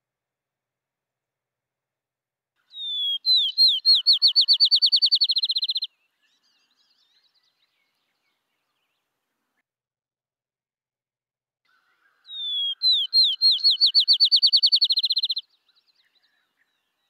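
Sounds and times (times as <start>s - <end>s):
sparrow whistling song: 2.7s - 9.0s, 12.0s - 17.0s.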